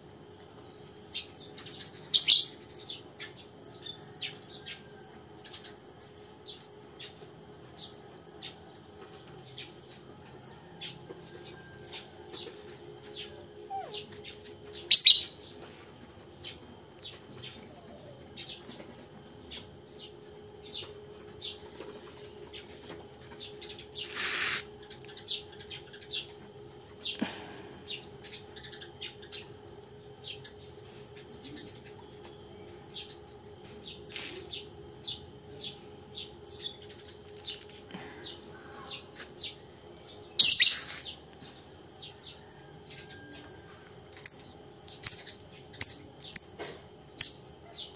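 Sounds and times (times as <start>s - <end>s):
birds chirping: 11.2s - 43.1s
brief scratchy noises: 24.0s - 24.7s.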